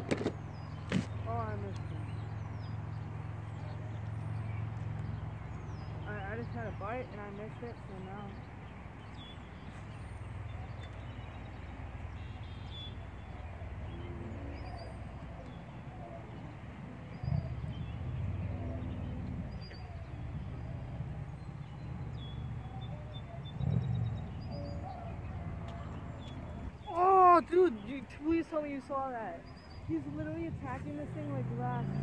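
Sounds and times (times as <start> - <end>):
small birds chirping: 0.0 - 32.0
wind rumbling on microphone: 13.0 - 28.5, 29.4 - 32.0.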